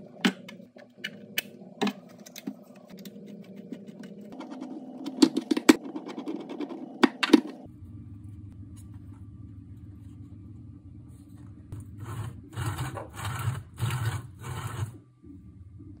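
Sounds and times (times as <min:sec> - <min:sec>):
low hum: 0:00.0 - 0:16.0
plastic scraping strokes: 0:12.0 - 0:15.0.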